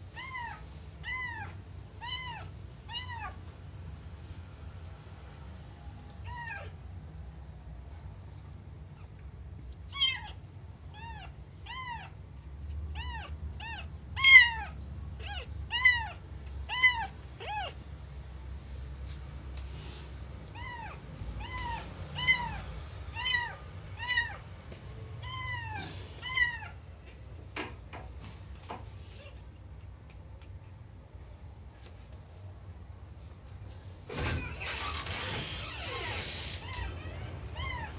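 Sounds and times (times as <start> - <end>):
kitten meowing: 0.2 - 3.4, 9.8 - 12.2, 13.0 - 17.8, 20.5 - 24.4, 25.2 - 26.8, 34.4 - 37.9.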